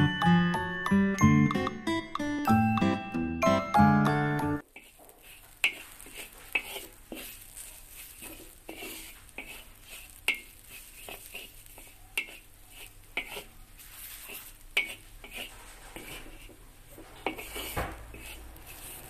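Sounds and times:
chiming music jingle: 0.0s - 4.6s
wooden spatula scraping a wok: 4.6s - 19.0s.

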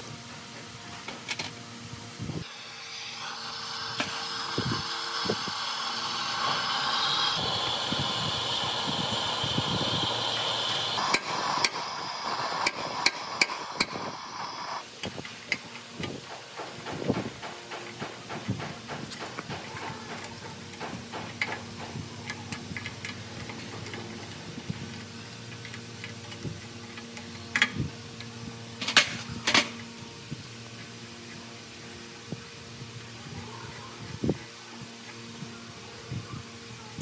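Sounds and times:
steady hissing: 2.4s - 26.6s.

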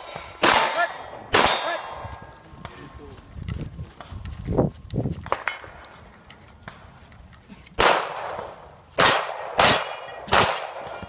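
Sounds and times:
steel target ringing: 0.0s - 2.1s, 9.0s - 11.0s
gunshots: 0.4s - 2.0s, 7.8s - 11.0s.

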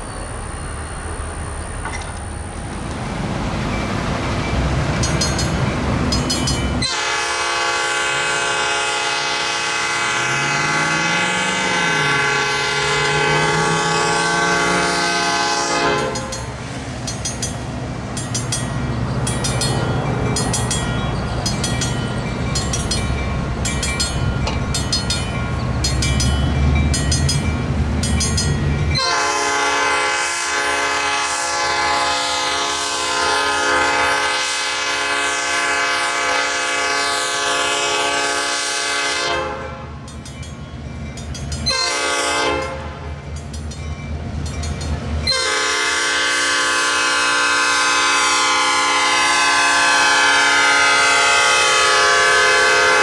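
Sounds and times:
crossing bell striking: 3.7s - 7.4s, 10.1s - 29.8s, 39.8s - 46.0s
train air horn blast: 6.8s - 16.4s, 29.0s - 39.9s, 41.7s - 43.0s, 45.3s - 53.0s.

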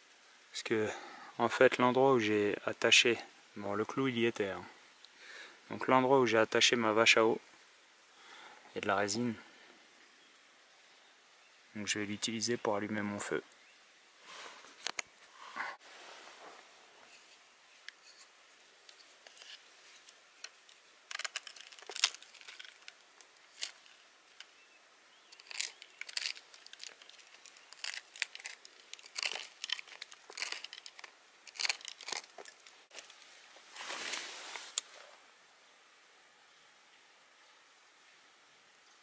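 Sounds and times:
wooden stick scraping bark: 14.3s - 24.6s, 25.2s - 35.1s.

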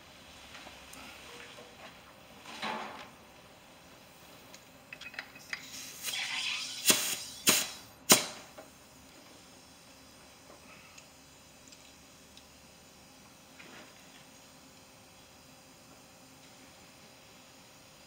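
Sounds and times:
compressed air hiss: 5.6s - 8.4s
sharp pops: 6.8s - 8.4s.

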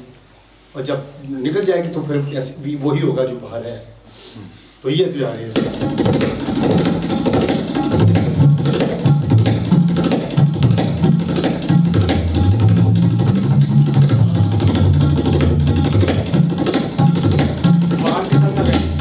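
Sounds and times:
deep drum notes bending in pitch: 5.5s - 19.0s
tabla fast strokes: 5.5s - 19.0s.

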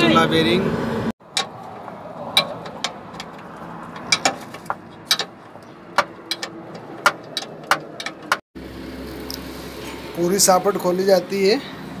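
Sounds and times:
metallic clicks and knocks: 1.2s - 8.4s.

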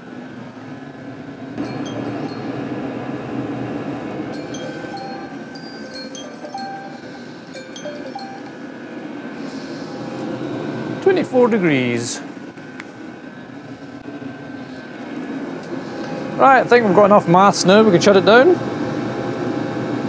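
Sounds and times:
short high-pitched pings: 1.6s - 2.8s, 4.4s - 8.6s.

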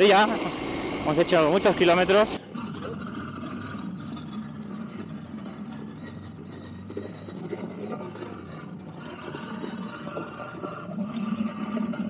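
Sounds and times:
motorcycle engine running at low speed: 0.0s - 9.0s.

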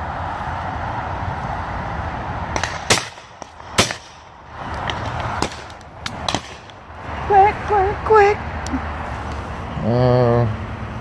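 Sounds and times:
steady rushing noise: 0.0s - 9.9s
shotgun shots: 2.6s - 4.4s, 5.0s - 6.7s.

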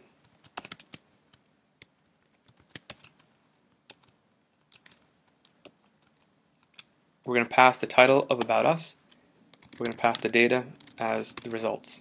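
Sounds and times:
keyboard typing: 0.2s - 6.9s, 8.3s - 11.8s.

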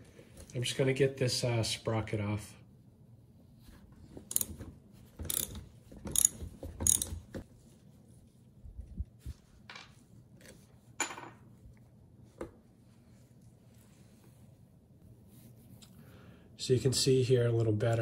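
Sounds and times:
socket ratchet clicking: 4.3s - 4.6s, 5.2s - 7.2s.

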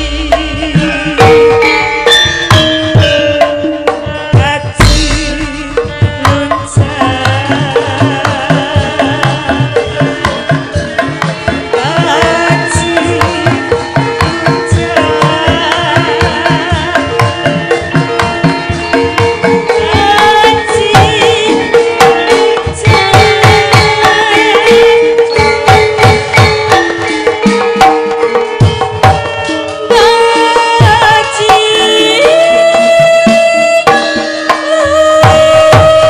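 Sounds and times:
woman singing through microphone: 0.0s - 27.0s, 29.8s - 36.0s
hand drums beating fast rhythm: 0.0s - 36.0s
ringing metallophone tones: 0.0s - 36.0s.

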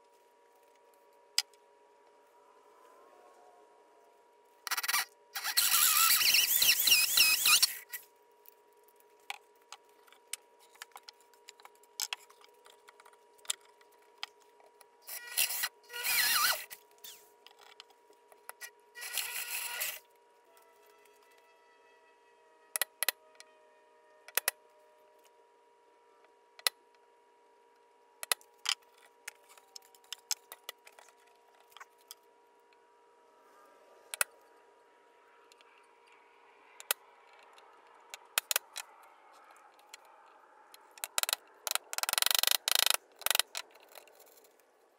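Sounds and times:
faint steady hum: 0.0s - 44.9s
power drill with hole saw: 4.7s - 8.0s, 15.0s - 17.2s, 19.0s - 20.0s.

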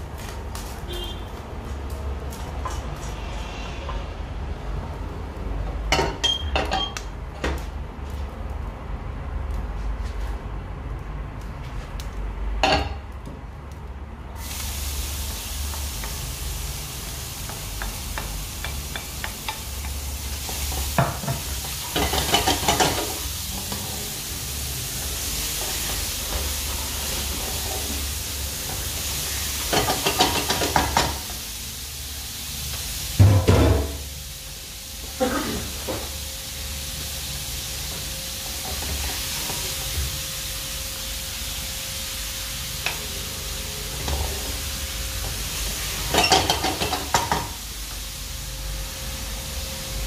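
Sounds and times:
food sizzling in pan: 14.4s - 50.0s.

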